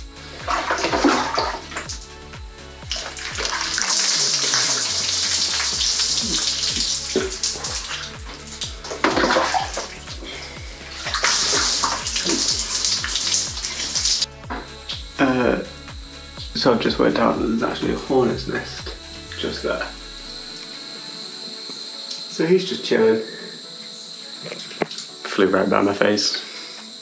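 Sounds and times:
shower water splashing: 0.0s - 2.2s, 2.8s - 15.7s, 24.5s - 25.1s
background music with beat: 0.0s - 27.0s.

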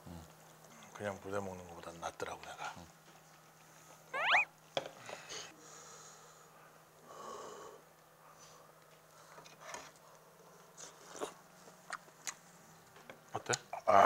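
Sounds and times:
person blowing on spoonful: 4.2s - 4.5s.

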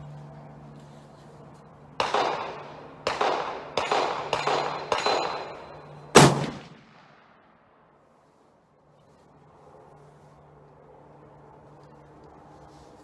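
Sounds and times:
gunshots with echo: 2.0s - 5.6s, 6.2s - 7.4s
loud rifle blast: 6.1s - 7.6s.

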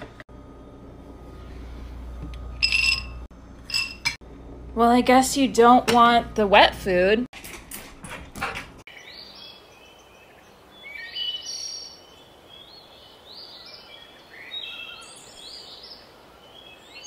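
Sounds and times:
songbirds chirping: 8.9s - 17.0s
faint woodland hiss: 9.0s - 17.0s.

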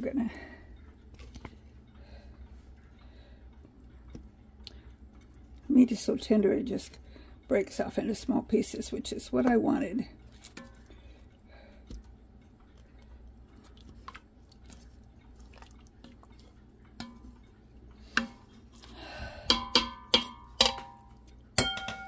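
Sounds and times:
utensil knocking in metal pot: 17.0s - 17.4s, 19.4s - 22.0s.

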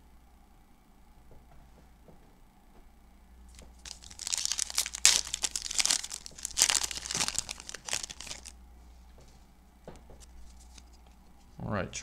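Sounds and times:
foil wrapper crinkling and tearing: 3.5s - 8.6s.

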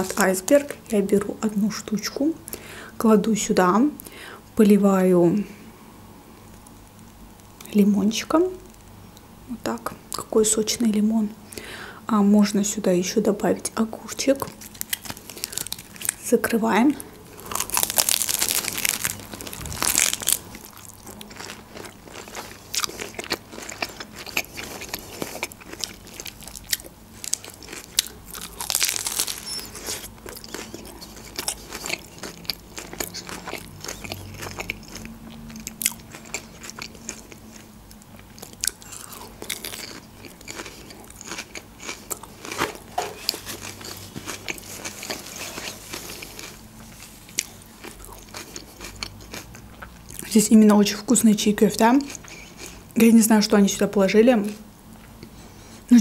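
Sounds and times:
wet crunchy chewing: 14.4s - 16.2s, 17.3s - 50.3s, 52.0s - 53.0s
biting into crisp lettuce: 17.4s - 37.5s.

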